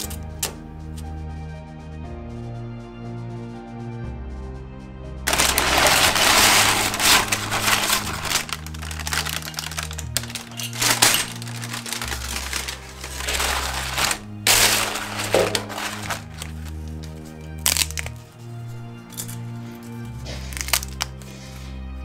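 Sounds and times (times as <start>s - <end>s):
background music with bass line: 0.0s - 22.0s
chips and paper crackling: 5.3s - 18.2s, 20.2s - 21.6s
chips clattering together: 5.3s - 18.2s, 19.1s - 19.5s, 20.2s - 21.3s.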